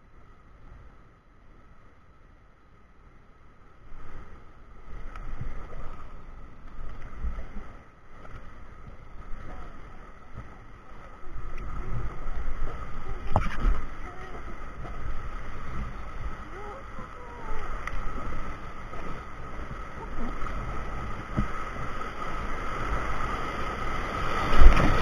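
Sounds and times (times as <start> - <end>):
rushing river rapid: 3.6 - 25.0
low rumbling on microphone: 4.9 - 22.2.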